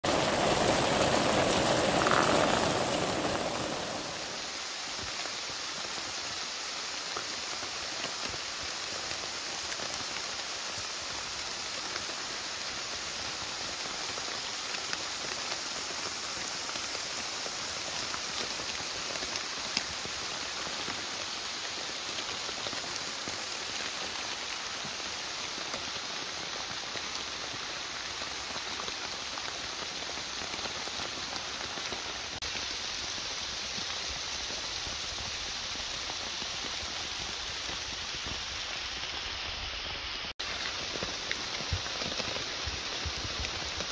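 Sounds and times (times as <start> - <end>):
steady rain: 0.0 - 43.9
raindrop ticks: 0.2 - 4.2.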